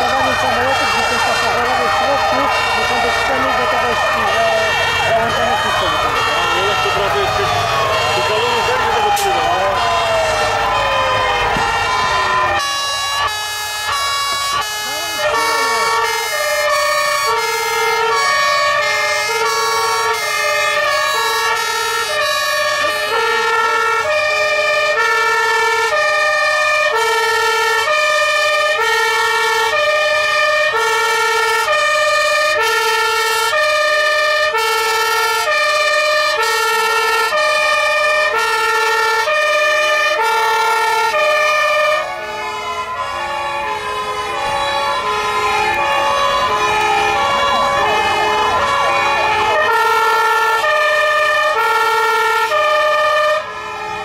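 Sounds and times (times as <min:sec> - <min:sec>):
two-tone hi-lo siren: 0:00.0 - 0:54.0
wailing sirens: 0:00.0 - 0:54.0.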